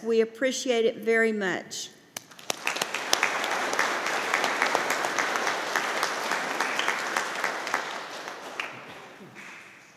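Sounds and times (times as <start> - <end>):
congregation applauding: 2.2 - 9.9.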